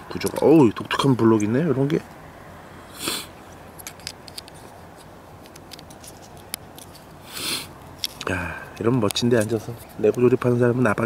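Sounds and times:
short hisses: 0:02.8 - 0:03.4, 0:07.2 - 0:07.8.

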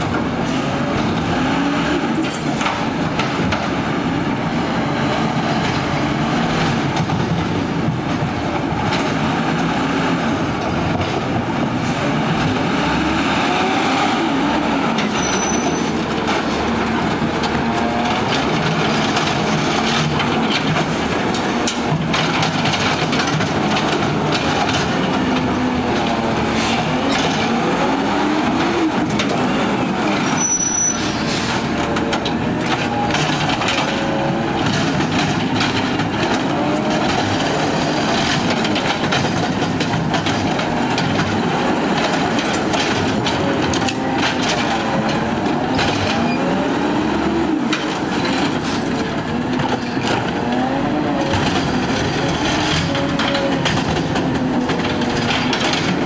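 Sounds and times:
garbage truck engine revving: 0:00.0 - 0:56.0
knocks of arm and carts: 0:16.0 - 0:30.3, 0:31.6 - 0:56.0.

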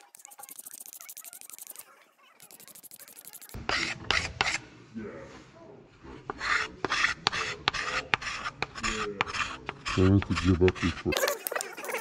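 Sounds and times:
sandpaper rubbing on wood: 0:00.0 - 0:04.6, 0:06.4 - 0:11.2.

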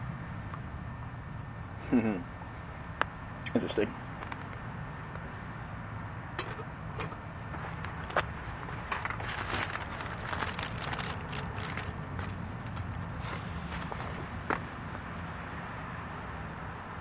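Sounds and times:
plastic bag crinkling: 0:07.7 - 0:13.1.

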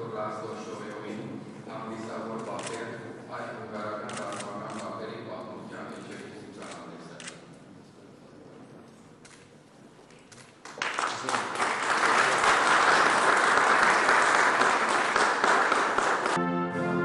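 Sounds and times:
audience applause: 0:10.6 - 0:16.4.

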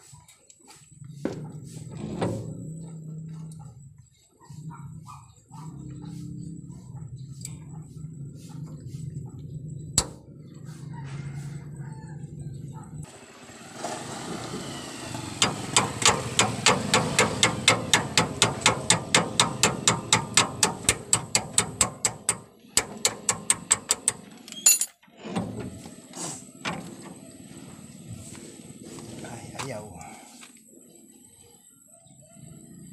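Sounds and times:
sharp metallic clicks: 0:15.4 - 0:24.6.

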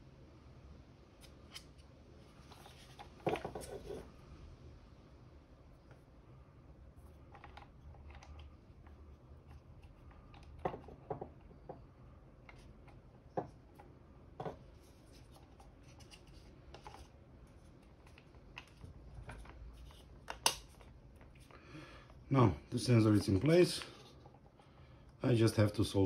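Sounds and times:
hands handling plastic housing: 0:02.4 - 0:04.1, 0:07.2 - 0:11.8, 0:12.4 - 0:21.5.

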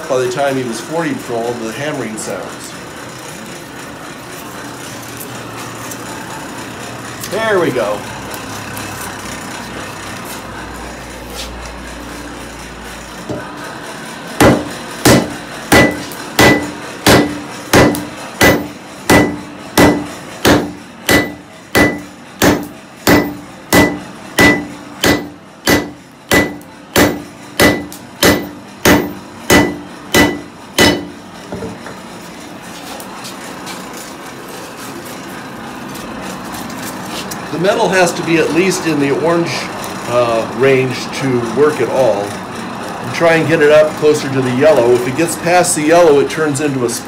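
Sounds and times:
hammer striking iron on anvil: 0:14.4 - 0:31.8.

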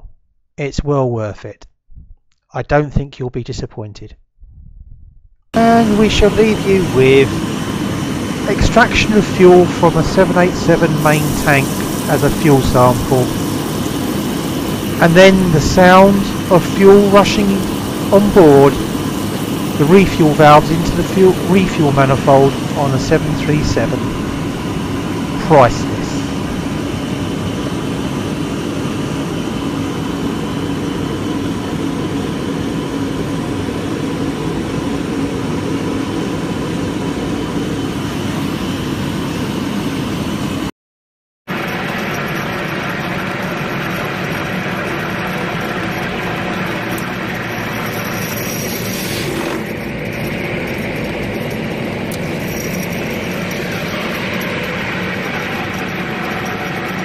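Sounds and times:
low mechanical hum: 0:04.4 - 0:40.7, 0:41.5 - 0:57.0
fuel rushing through valves: 0:05.6 - 0:31.7, 0:41.5 - 0:57.0.

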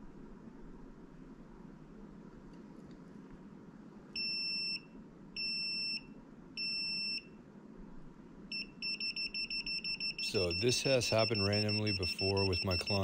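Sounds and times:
gas detector alarm beeping: 0:04.2 - 0:07.3, 0:08.5 - 0:13.0.

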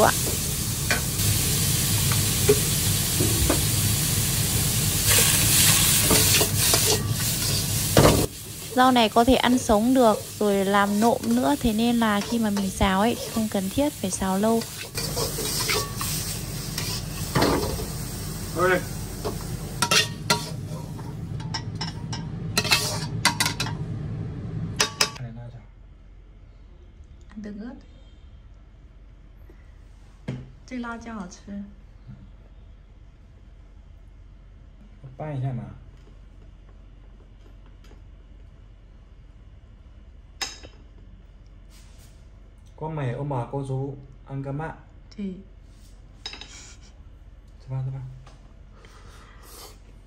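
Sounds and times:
vegetables sizzling in a wok: 0:00.0 - 0:25.2
steady low hum: 0:00.0 - 0:43.2
metal spatula scraping pan: 0:14.5 - 0:17.7, 0:22.6 - 0:23.6.

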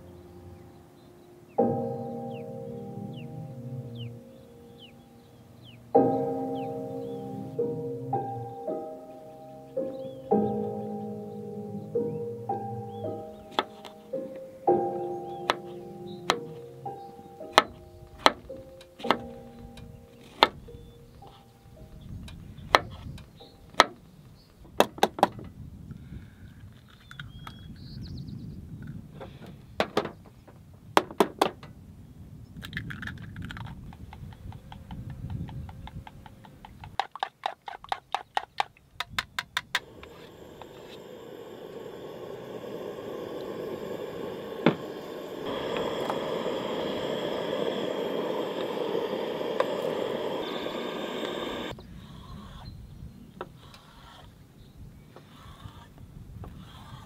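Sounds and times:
steady hiss: 0:00.0 - 0:23.4, 0:39.8 - 0:51.8.

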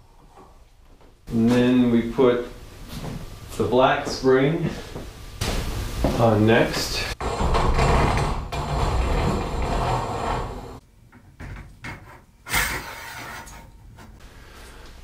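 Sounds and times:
metal sliding and rubbing: 0:07.0 - 0:10.8, 0:12.0 - 0:14.2.

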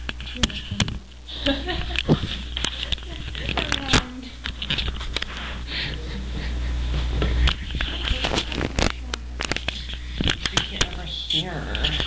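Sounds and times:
microphone handling clicks and knocks: 0:00.0 - 0:01.1, 0:07.2 - 0:11.1
steady low hum: 0:00.0 - 0:12.0.

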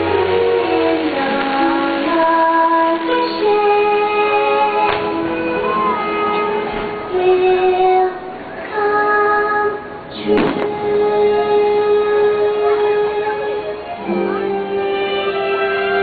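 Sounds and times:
orchestral music with singing: 0:00.0 - 0:16.0
firework bang: 0:04.8 - 0:07.1, 0:10.3 - 0:11.0.

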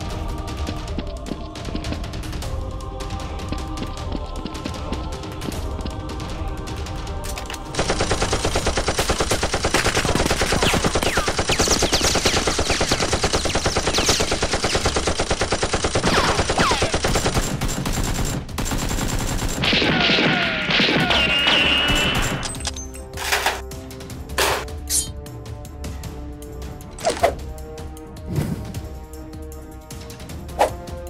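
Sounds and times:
machine-gun fire: 0:07.7 - 0:22.4.

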